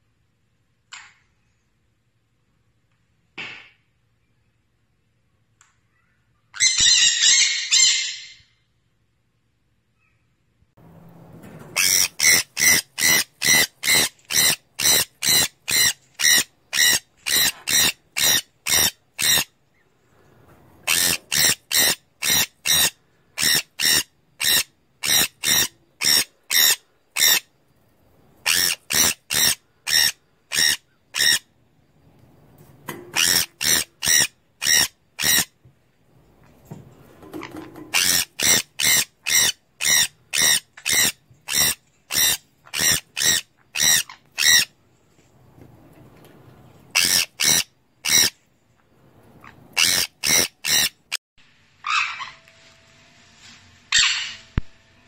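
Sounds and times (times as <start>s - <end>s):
parrot screeching: 6.6s - 8.4s, 11.7s - 19.5s, 20.8s - 27.4s, 28.4s - 31.4s, 33.1s - 35.5s, 37.9s - 44.7s, 46.9s - 48.4s, 49.4s - 51.2s, 51.8s - 52.4s, 53.9s - 54.4s.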